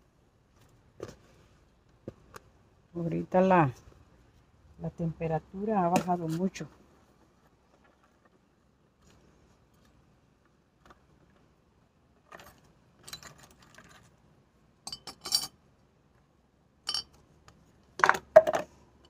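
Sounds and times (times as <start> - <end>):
flower pots clinking and knocking: 16.8 - 17.2, 18.0 - 18.8.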